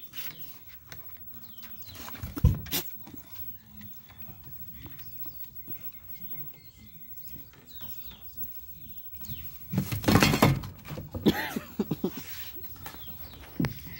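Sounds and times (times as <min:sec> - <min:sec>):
mirror clattering onto wooden boards: 0:09.8 - 0:11.3.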